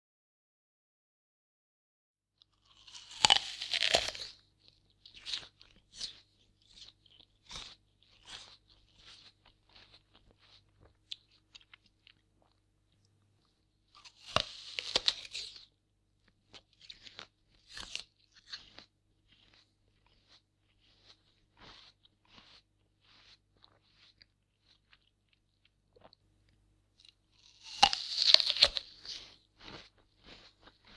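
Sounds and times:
crunching apple bite: 2.4s - 12.6s, 13.9s - 26.2s, 27.0s - 30.9s
crunchy chewing: 2.4s - 30.9s.

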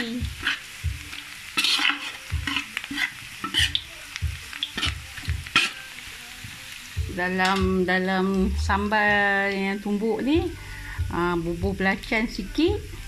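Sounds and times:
spatula scraping a wok: 0.0s - 3.8s, 4.6s - 5.9s
light sizzle of frying: 0.0s - 13.0s.

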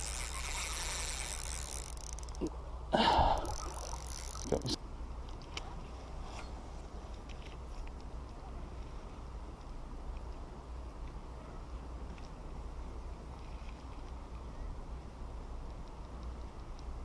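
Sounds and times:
fishing reel whirring: 0.0s - 2.5s, 3.2s - 4.8s.

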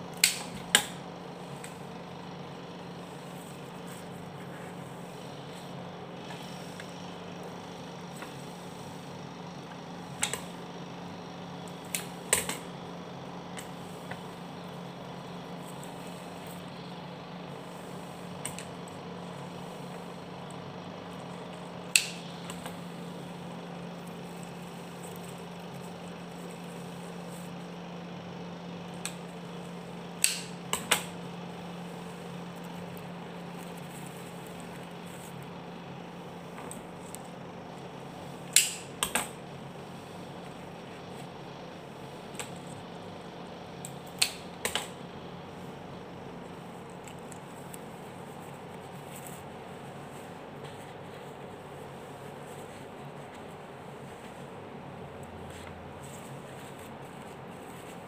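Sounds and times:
steady low hum: 0.0s - 58.0s
scissors snipping flower stems: 0.1s - 1.0s, 21.9s - 22.8s, 30.2s - 31.1s.

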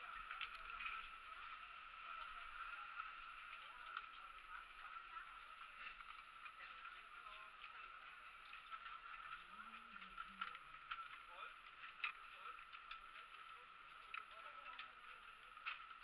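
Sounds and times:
small clicks: 0.0s - 16.0s.

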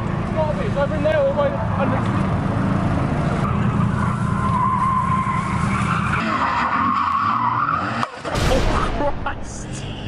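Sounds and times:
car engine running hard: 0.0s - 6.8s
car tyres squealing: 2.7s - 8.4s.

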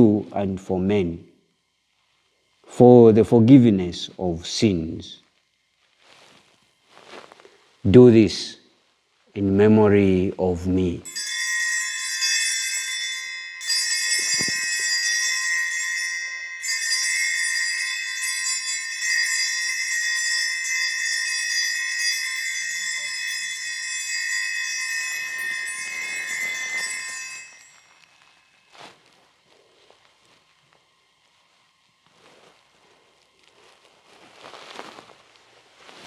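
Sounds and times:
small bells ringing: 11.0s - 29.0s.

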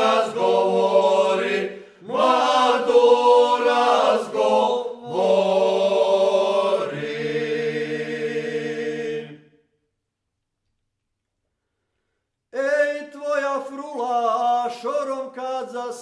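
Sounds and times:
men's vocal group singing a cappella: 0.0s - 9.4s.

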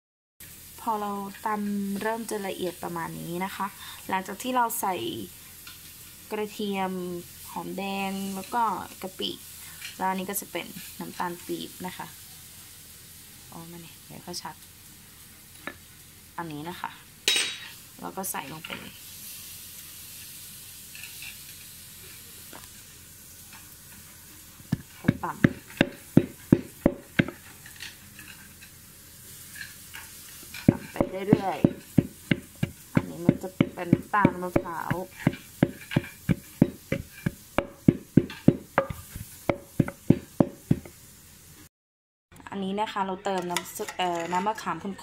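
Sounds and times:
background hiss: 0.4s - 41.7s
wooden pestle pounding in mortar: 24.8s - 27.4s, 30.6s - 40.9s.

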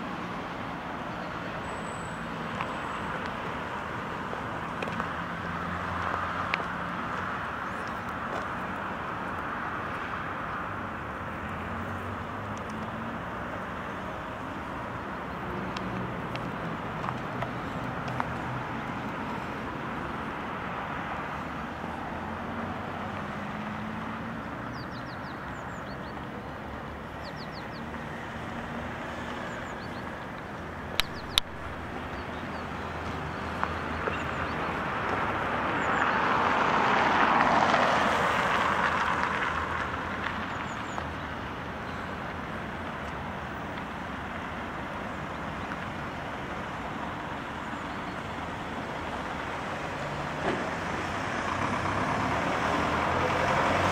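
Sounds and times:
car passing: 0.0s - 53.9s
street traffic hum: 0.0s - 53.9s
sharp clicks: 30.4s - 31.5s.

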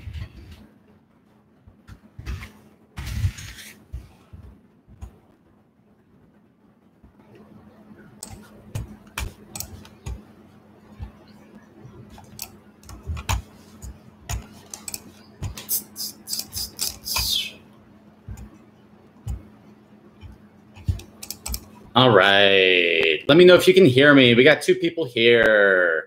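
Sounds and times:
faint electrical hum: 0.0s - 26.0s
computer keyboard clicks: 8.2s - 10.2s, 14.3s - 15.6s, 20.8s - 21.7s.

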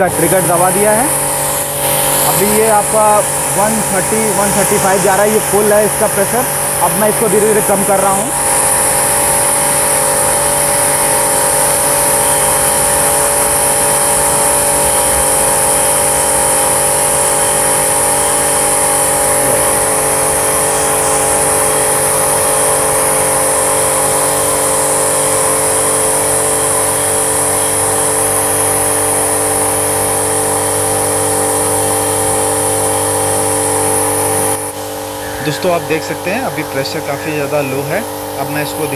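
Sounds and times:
pressure washer motor running: 0.0s - 38.9s
water spraying from gun: 0.2s - 35.2s.

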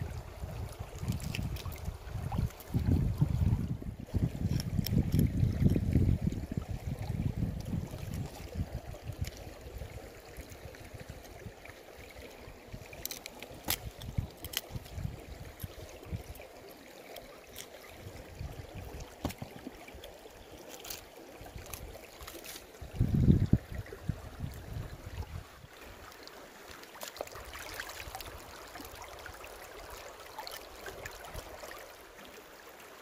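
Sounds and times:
stream trickling over rocks: 0.0s - 33.0s.

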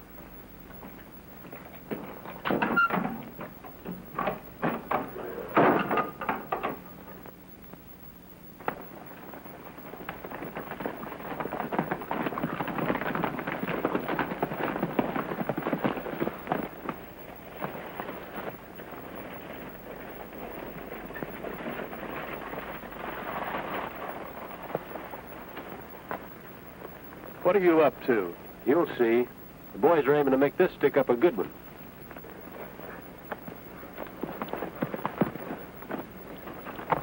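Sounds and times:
galloping horses hoofbeats: 8.6s - 37.0s.

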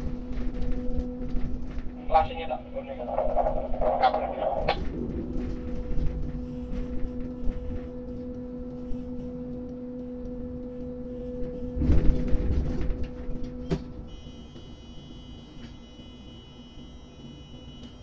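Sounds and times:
crane machinery humming: 0.0s - 18.0s
rumbling surge: 2.0s - 8.0s.

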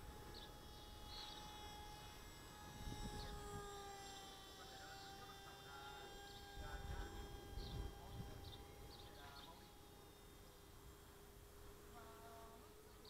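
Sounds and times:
electric model plane motor whine: 0.0s - 13.0s
wind on microphone: 2.5s - 3.8s, 6.5s - 9.2s.

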